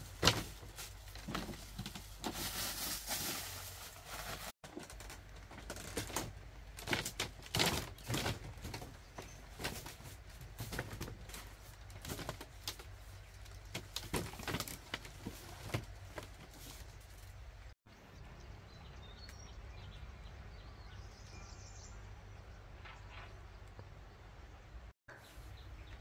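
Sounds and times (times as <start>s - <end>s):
cloth rustling: 0.0s - 5.0s.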